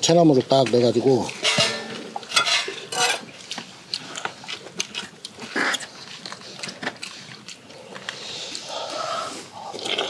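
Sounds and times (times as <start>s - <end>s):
people chewing and slurping: 0.3s - 10.0s.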